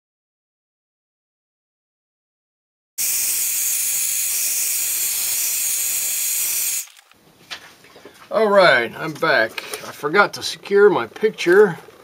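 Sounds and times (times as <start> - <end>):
hairdryer blowing air: 3.0 - 7.0.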